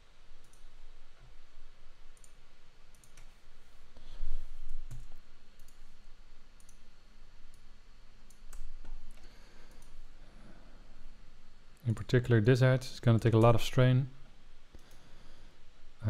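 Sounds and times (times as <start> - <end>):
computer mouse clicking: 0.4 - 0.7, 2.1 - 3.4, 4.6 - 5.9, 6.6 - 6.9, 7.5 - 10.1, 14.7 - 15.1.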